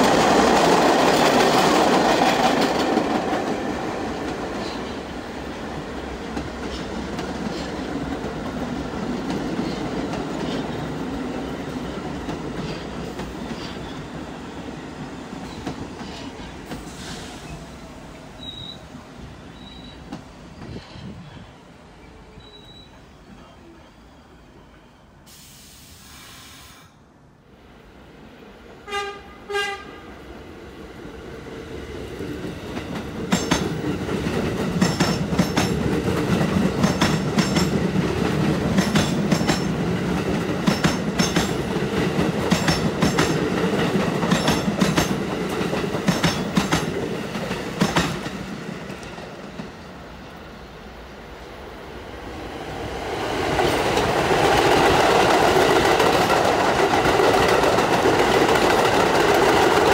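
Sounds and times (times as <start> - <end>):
train rumble: 0.0 - 18.4, 31.7 - 59.9
train horn blasts: 28.8 - 30.1
wheels clacking over rail joints: 32.7 - 49.8, 53.5 - 59.9.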